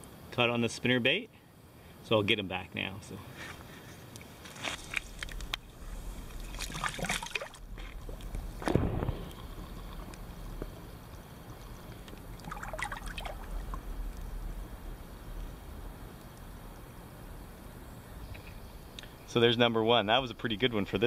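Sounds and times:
water splashing: 0:04.8 - 0:15.4
dull low thump: 0:07.6 - 0:11.0.

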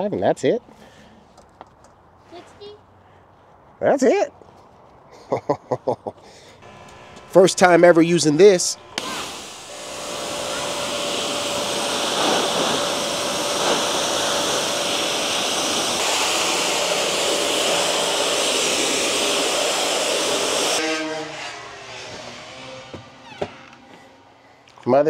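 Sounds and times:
machine running with a whine: 0:06.6 - 0:24.4.

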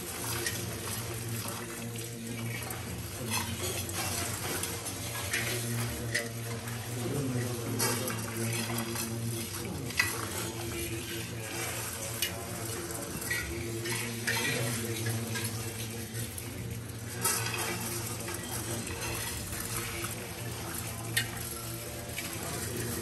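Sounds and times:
rice grains pattering on metal plates: 0:00.0 - 0:23.0
drone of voices: 0:00.8 - 0:23.0.

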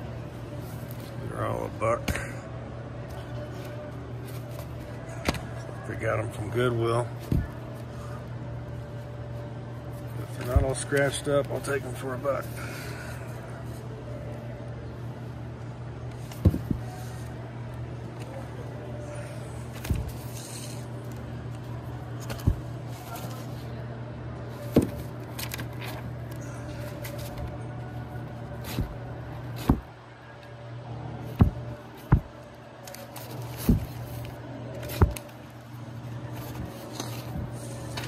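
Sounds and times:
record jackets knocking: 0:16.3 - 0:17.0, 0:19.8 - 0:20.4, 0:22.2 - 0:23.3, 0:24.6 - 0:25.9, 0:28.6 - 0:30.0, 0:31.3 - 0:35.4.

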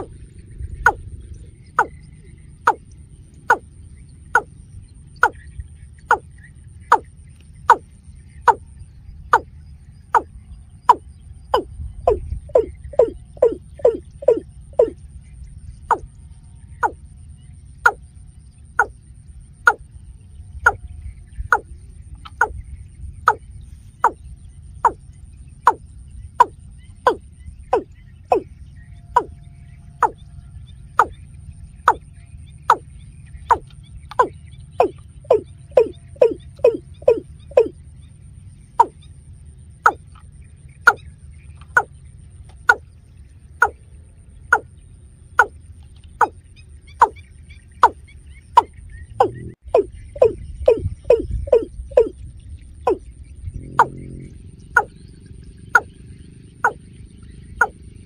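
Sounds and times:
watercock calling: 0:00.8 - 0:01.1, 0:01.7 - 0:02.9, 0:03.5 - 0:03.7, 0:05.2 - 0:06.3, 0:06.9 - 0:08.7, 0:10.9 - 0:15.0, 0:16.8 - 0:17.0, 0:18.8 - 0:19.0, 0:19.6 - 0:19.8, 0:21.4 - 0:22.6, 0:24.0 - 0:24.2, 0:25.7 - 0:29.4, 0:30.0 - 0:30.2, 0:31.0 - 0:31.2, 0:31.9 - 0:37.8, 0:38.7 - 0:39.1, 0:39.8 - 0:42.9, 0:45.4 - 0:45.6, 0:46.2 - 0:52.2, 0:52.8 - 0:54.2, 0:54.8 - 0:56.0, 0:56.6 - 0:56.8.

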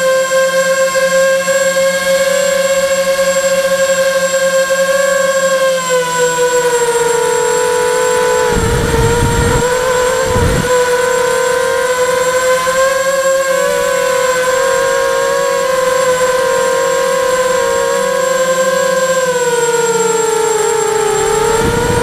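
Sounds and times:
drone motors droning hum: 0:00.1 - 0:22.0
wind buffeting microphone: 0:07.9 - 0:11.9, 0:21.0 - 0:22.0.

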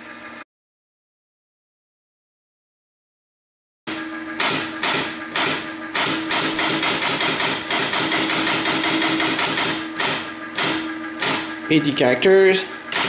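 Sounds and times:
steady hum: 0:03.9 - 0:13.0.

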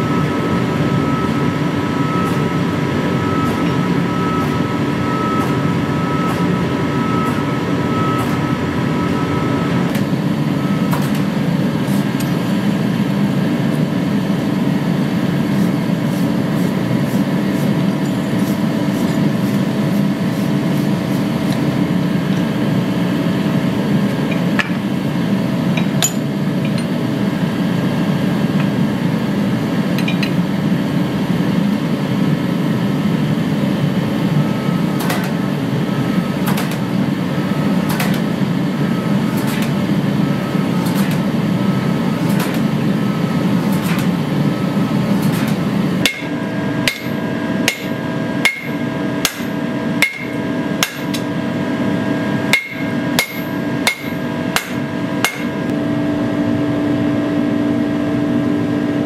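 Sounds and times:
forging machine humming: 0:00.0 - 0:59.0.

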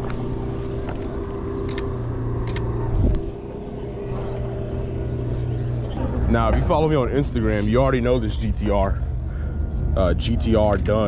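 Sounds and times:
car engine idling: 0:00.0 - 0:11.0
sharp clicks: 0:01.6 - 0:02.7.

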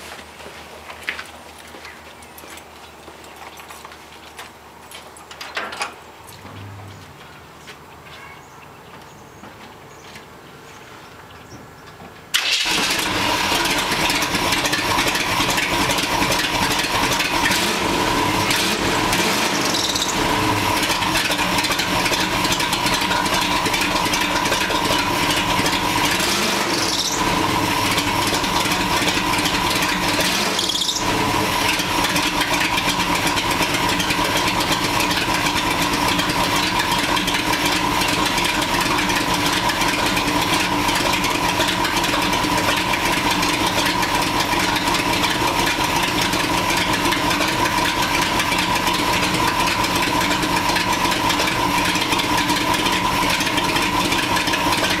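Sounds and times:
engine idling: 0:12.3 - 0:55.0.

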